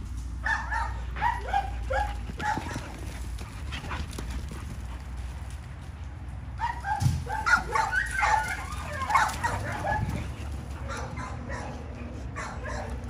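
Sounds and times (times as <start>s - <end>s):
dogs making high-pitched calls: 6.6s - 13.0s.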